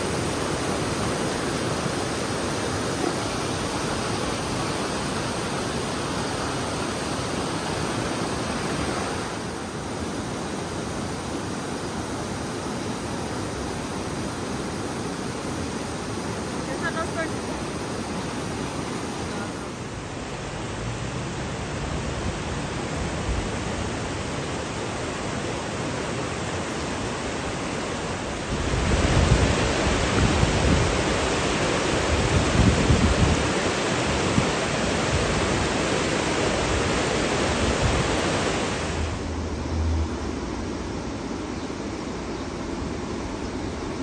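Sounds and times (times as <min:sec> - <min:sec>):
running water rushing: 0:00.0 - 0:44.0
low rumbling: 0:39.0 - 0:40.9.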